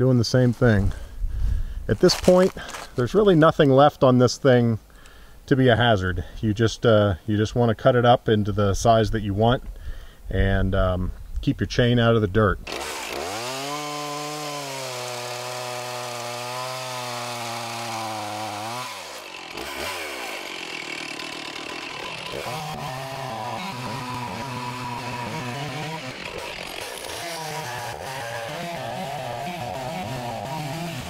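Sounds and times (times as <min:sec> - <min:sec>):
chainsaw cutting log: 0:02.0 - 0:03.0, 0:12.6 - 0:31.0.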